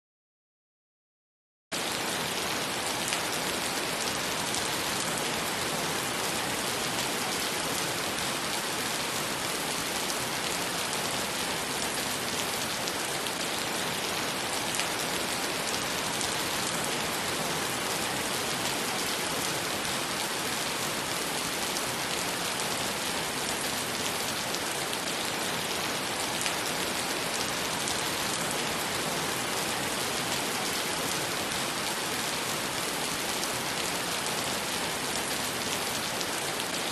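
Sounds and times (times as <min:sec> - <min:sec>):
heavy rain on puddled pavement: 0:01.8 - 0:36.9.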